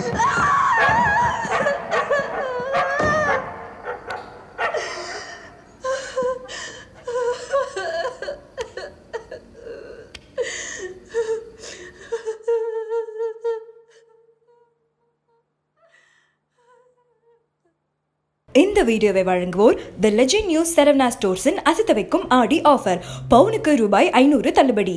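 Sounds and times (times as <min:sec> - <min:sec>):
woman whimpering and sobbing: 0:00.0 - 0:03.4, 0:04.7 - 0:14.2
woman gasping and breathing hard: 0:04.7 - 0:12.5.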